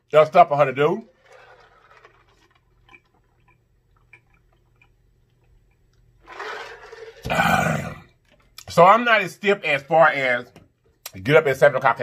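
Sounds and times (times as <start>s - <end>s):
person drinking from glass jar: 1.2s - 8.0s.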